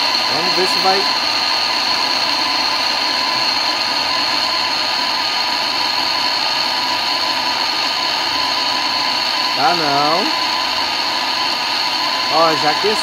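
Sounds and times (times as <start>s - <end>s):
gas torch hissing and whistling: 0.0s - 13.0s.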